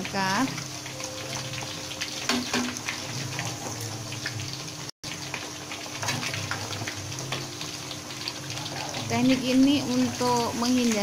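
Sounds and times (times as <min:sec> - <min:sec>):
food deep-frying in oil: 0:00.0 - 0:11.0
metal ladle knocking on pan: 0:02.2 - 0:02.9.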